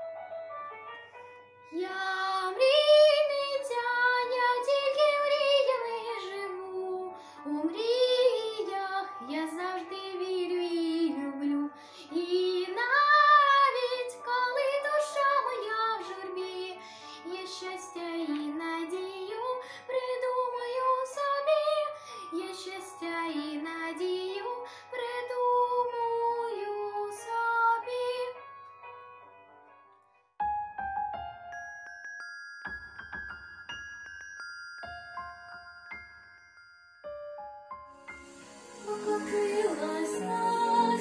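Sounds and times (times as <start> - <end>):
girl singing: 1.7 - 28.4, 38.6 - 41.0
musical accompaniment: 37.1 - 41.0.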